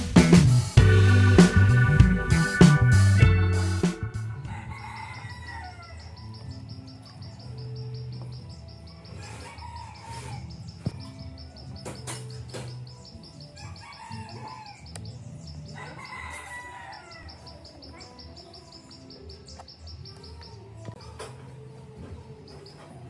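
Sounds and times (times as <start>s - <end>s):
rooster crowing: 4.4s - 6.1s, 9.2s - 10.5s, 13.6s - 14.8s, 15.8s - 17.3s.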